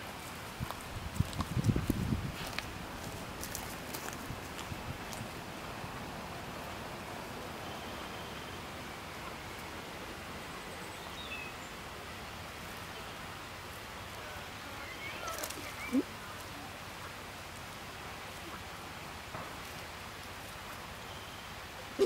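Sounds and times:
outdoor background hiss: 0.0s - 22.0s.

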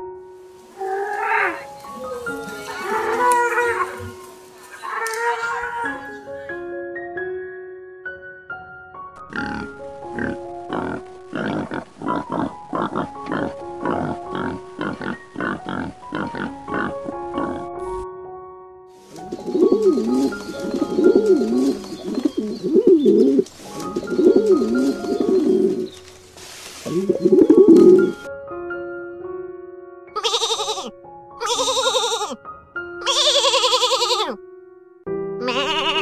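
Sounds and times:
background music: 0.0s - 36.0s
pigs grunting: 0.8s - 6.1s, 9.3s - 17.8s, 19.4s - 25.9s
pigeon cooing: 0.8s - 6.2s, 19.1s - 26.0s, 26.8s - 28.3s.

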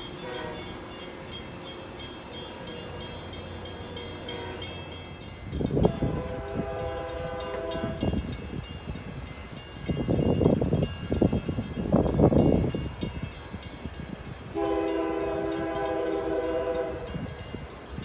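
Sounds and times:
train air horn chord: 0.0s - 0.9s, 3.7s - 8.2s, 14.5s - 17.3s
high hiss of train: 0.0s - 18.0s
wind buffeting microphone: 5.4s - 18.0s.

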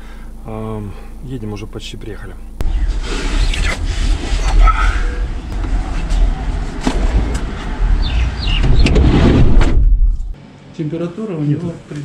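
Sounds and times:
wind: 2.5s - 10.4s
street traffic: 2.6s - 10.4s.

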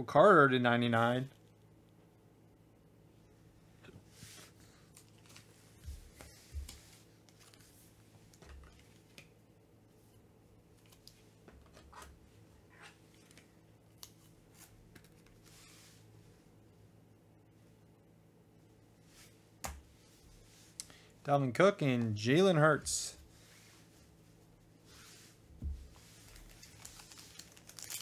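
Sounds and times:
trading cards handled: 6.1s - 9.3s, 25.9s - 28.0s.

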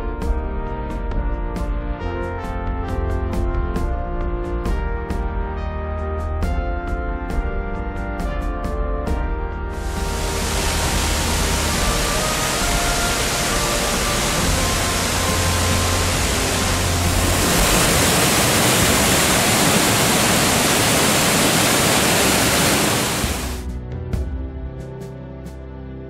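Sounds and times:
soft background music: 0.0s - 21.6s, 23.1s - 26.0s
waterfall rushing: 9.8s - 23.6s.

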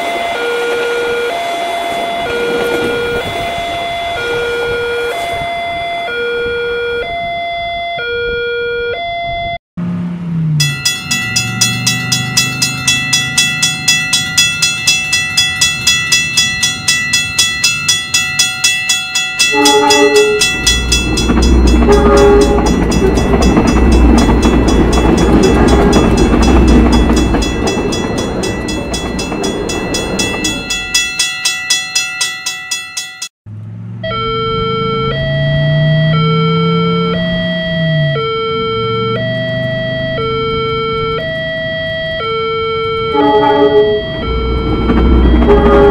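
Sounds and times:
train rumbling past: 0.0s - 6.2s, 9.8s - 32.4s, 42.9s - 45.9s
train horn: 0.0s - 7.2s, 19.4s - 23.2s, 43.0s - 45.9s
crossing bell ringing: 0.0s - 8.0s, 10.5s - 33.3s, 34.8s - 45.9s
electronic two-tone alarm: 10.6s - 31.0s, 34.0s - 45.9s.

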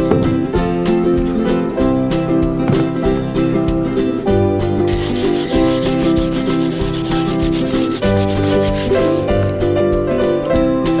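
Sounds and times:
acoustic guitar music: 0.0s - 11.0s
scrubbing strokes on rusty steel: 4.9s - 9.5s.

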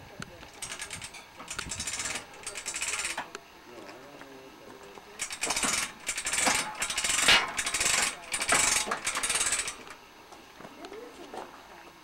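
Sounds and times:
metal ratchet clicking: 0.5s - 3.4s, 5.2s - 10.0s.

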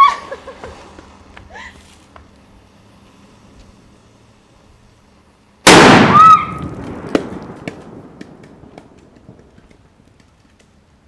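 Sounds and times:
firecracker blast rumble: 5.6s - 9.6s.

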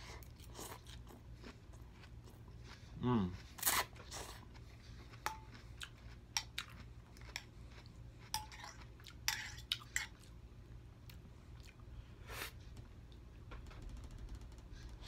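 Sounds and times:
chewing noodles: 0.0s - 10.4s.

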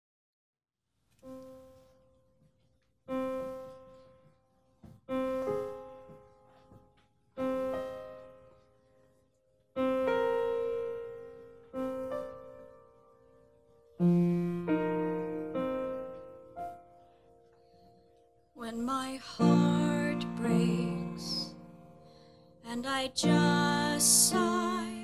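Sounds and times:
sustained piano chords: 9.7s - 25.0s.

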